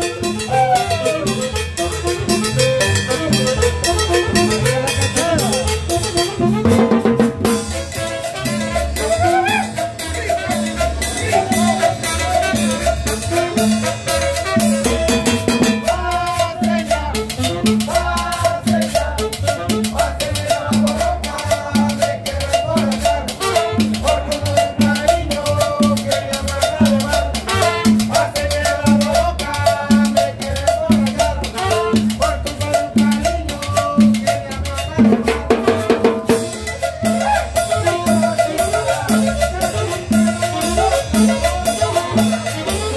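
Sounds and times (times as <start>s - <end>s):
horn melody: 0.0s - 17.9s, 23.3s - 24.3s, 27.3s - 28.3s, 31.5s - 32.4s, 35.2s - 42.9s
hand drums: 0.0s - 42.9s
upright bass: 0.0s - 42.9s.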